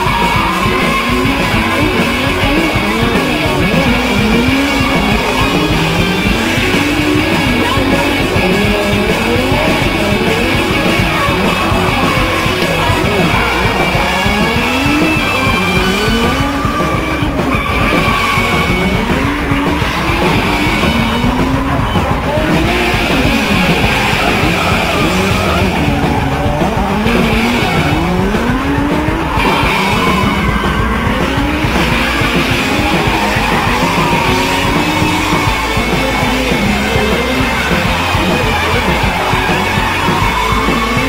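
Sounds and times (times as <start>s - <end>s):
car engines revving: 0.0s - 41.0s
music playing: 0.0s - 41.0s
tyres squealing: 0.0s - 41.0s.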